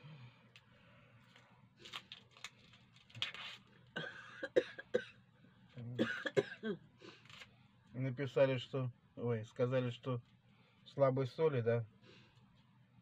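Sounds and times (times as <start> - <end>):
person coughing: 4.0 - 5.2, 6.0 - 6.8.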